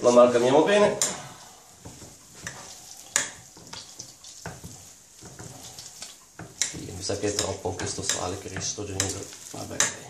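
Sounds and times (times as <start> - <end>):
pans sizzling on stove: 0.0 - 10.0
wet squelching of raw chicken: 1.4 - 7.1.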